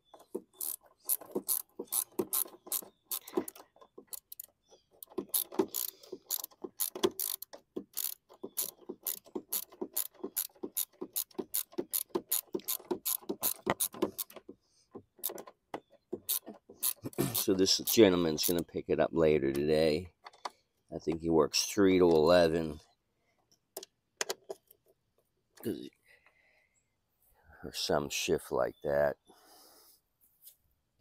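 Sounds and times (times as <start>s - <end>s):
ratchet wrench clicking: 5.1s - 14.3s, 16.3s - 18.0s.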